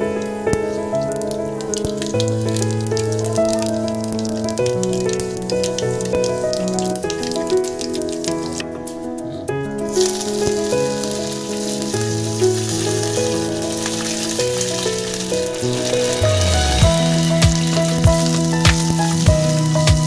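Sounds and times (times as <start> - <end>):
hot oil sizzling in a frying pan: 1.7 - 8.6, 9.9 - 20.0
background music with low beat: 16.2 - 20.0.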